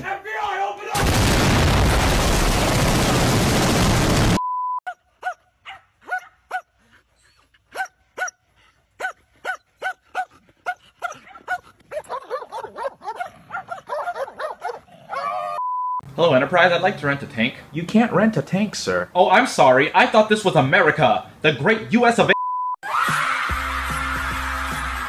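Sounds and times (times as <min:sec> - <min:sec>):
dog yipping: 0:04.9 - 0:08.4, 0:09.0 - 0:15.6
steady beep: 0:22.4 - 0:22.8.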